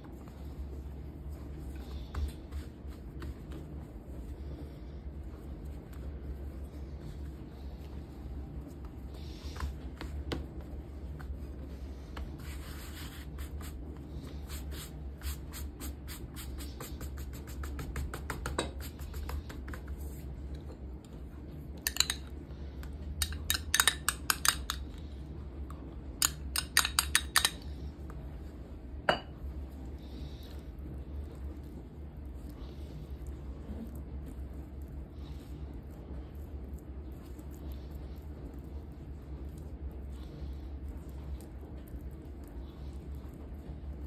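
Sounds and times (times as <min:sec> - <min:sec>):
steady low hum: 0:00.0 - 0:44.0
metal spoon clinking on glass bowl: 0:21.9 - 0:22.3, 0:23.2 - 0:24.8.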